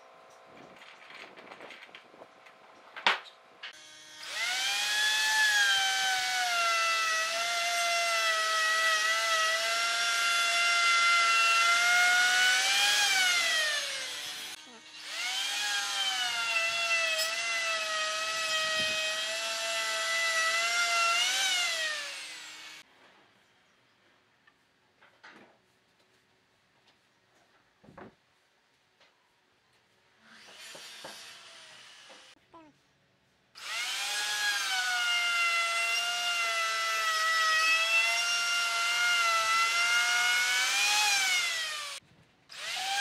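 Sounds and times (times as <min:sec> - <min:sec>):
router motor whining: 0:03.7 - 0:22.8, 0:30.3 - 0:32.4, 0:33.6 - 0:43.0.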